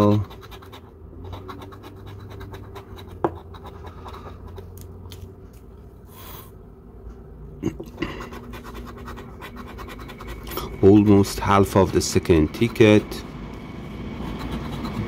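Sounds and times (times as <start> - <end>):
coin scratching lottery ticket: 0.0 - 4.8, 8.1 - 13.2, 14.2 - 15.0.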